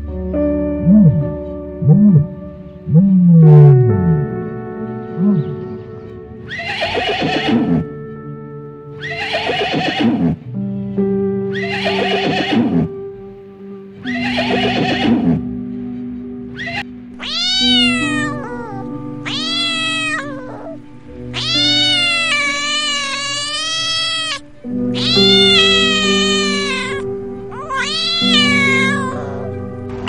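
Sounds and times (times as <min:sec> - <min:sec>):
background music: 0:00.0 - 0:30.0
cat meowing: 0:06.5 - 0:07.9, 0:11.5 - 0:12.9, 0:14.0 - 0:15.4, 0:16.6 - 0:29.7
horse whinnying: 0:06.5 - 0:07.9, 0:09.0 - 0:10.4, 0:11.6 - 0:12.9, 0:14.1 - 0:15.4, 0:16.6 - 0:29.6.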